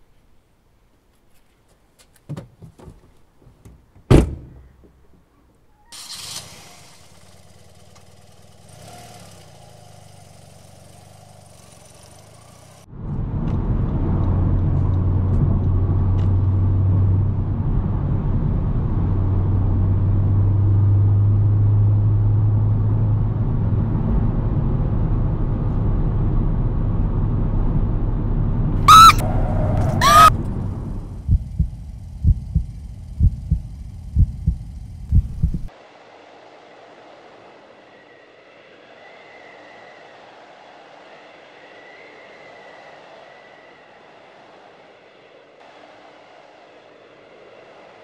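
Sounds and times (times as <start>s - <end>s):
faint street ambience: 0.0s - 48.0s
car driving rumble from inside: 13.0s - 35.7s
woman screaming: 28.8s - 30.4s.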